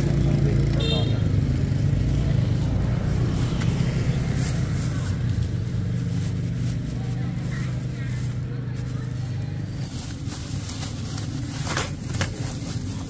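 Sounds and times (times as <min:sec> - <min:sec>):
vehicle engine running: 0:00.0 - 0:13.0
plastic bags rustling: 0:02.4 - 0:13.0.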